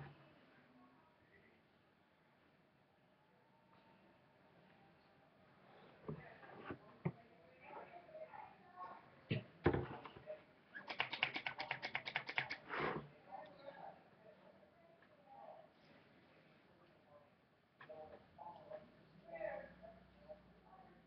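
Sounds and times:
rapid clicks: 10.8 - 12.6.

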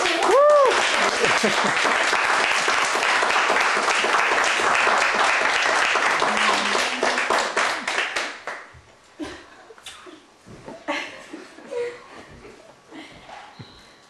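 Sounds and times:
people clapping: 0.0 - 8.8.

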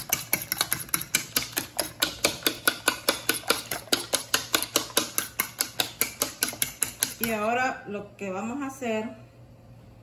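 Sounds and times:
fork beating eggs in a bowl: 0.0 - 7.8.

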